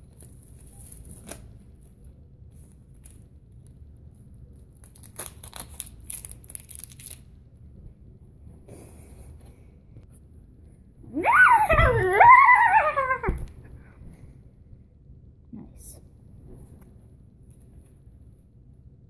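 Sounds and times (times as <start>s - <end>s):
plastic wrap and tape crinkling: 0.0s - 3.8s, 4.6s - 7.4s.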